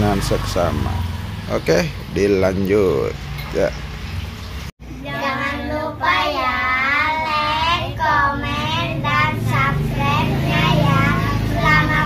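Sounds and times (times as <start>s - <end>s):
girls singing in chorus: 4.9s - 12.0s.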